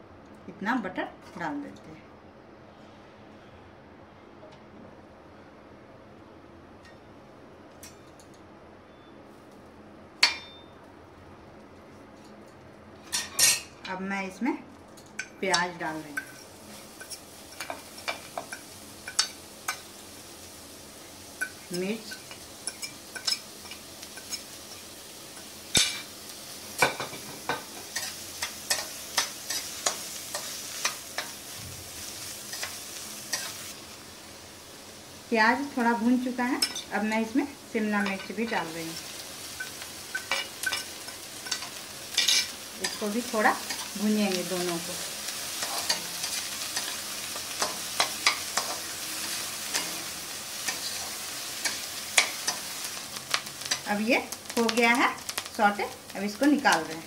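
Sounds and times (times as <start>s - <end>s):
onions sizzling in butter: 15.2s - 57.0s.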